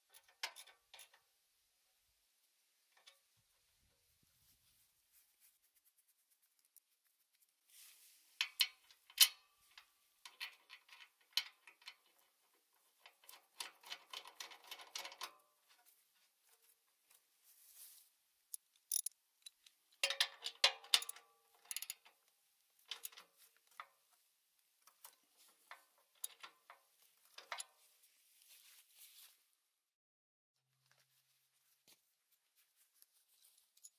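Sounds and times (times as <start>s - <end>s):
sharp metal clicks and knocks: 8.4s - 15.5s, 18.5s - 22.2s, 22.8s - 24.0s, 24.8s - 27.7s
ratchet wrench clicking: 18.9s - 19.1s.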